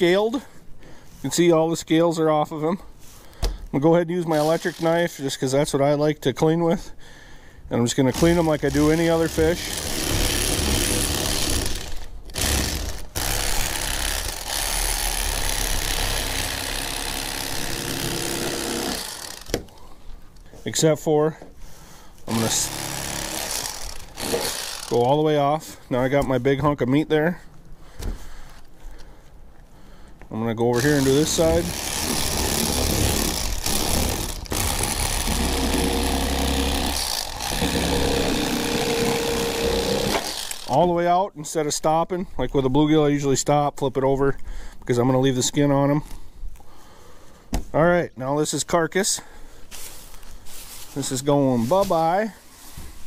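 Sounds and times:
electric fillet knife running: 9.6s - 19.5s, 30.8s - 40.7s.

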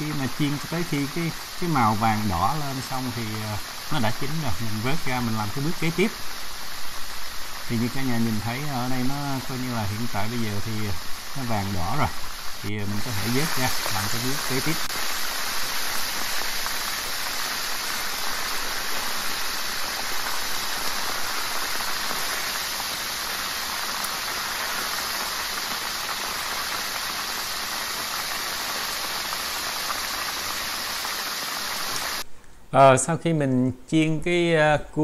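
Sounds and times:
deep-frying sizzle in hot oil: 0.0s - 32.3s.

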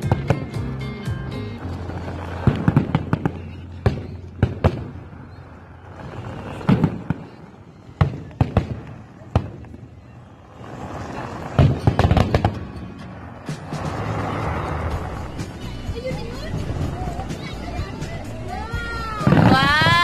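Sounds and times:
firework shells bursting: 1.8s - 5.0s, 11.5s - 14.4s.

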